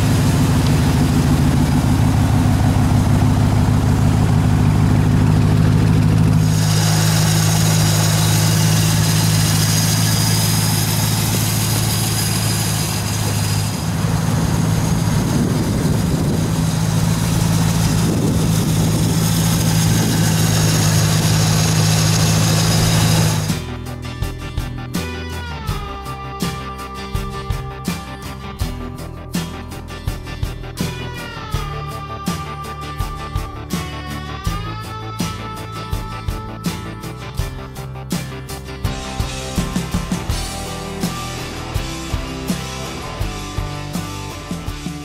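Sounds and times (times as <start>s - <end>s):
car engine idling: 0.0s - 24.4s.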